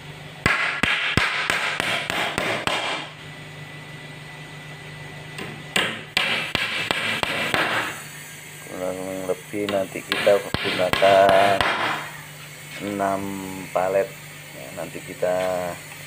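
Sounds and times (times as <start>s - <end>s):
hammer driving nails into wood: 5.8s - 7.9s.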